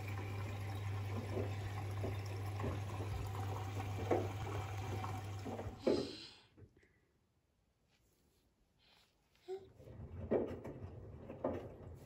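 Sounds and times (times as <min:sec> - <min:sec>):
washing machine running: 0:00.0 - 0:06.0, 0:09.8 - 0:12.0.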